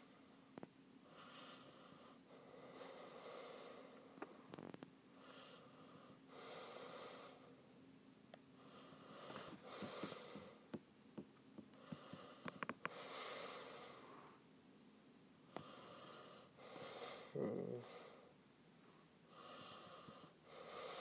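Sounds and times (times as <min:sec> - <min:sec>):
person breathing faintly: 0:01.1 - 0:04.6, 0:08.5 - 0:10.8, 0:11.7 - 0:14.4, 0:15.5 - 0:18.4, 0:19.0 - 0:21.0.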